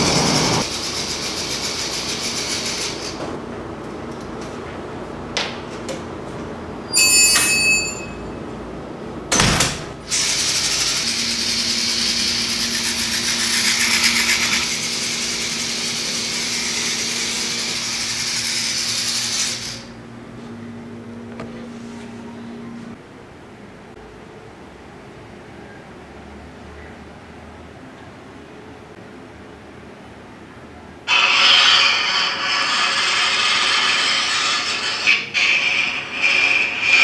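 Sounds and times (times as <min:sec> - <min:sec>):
electric motor and gears whining: 0:10.1 - 0:19.9
scrape on tile floor: 0:31.1 - 0:37.0.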